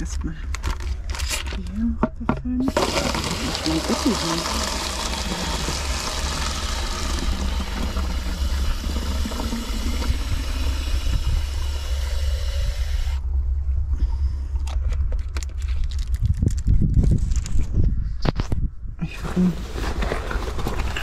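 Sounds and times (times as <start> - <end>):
tap water filling plastic bottle: 2.6 - 13.2.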